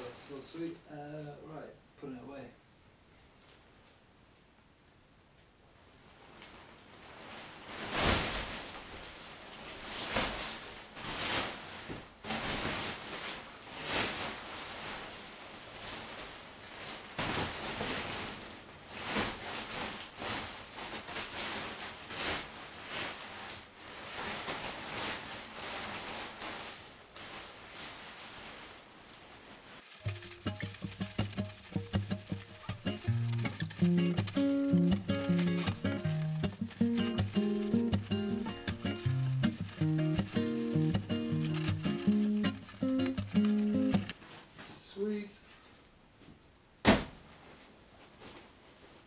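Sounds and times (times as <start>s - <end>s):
tent fabric rustling: 6.3s - 44.6s.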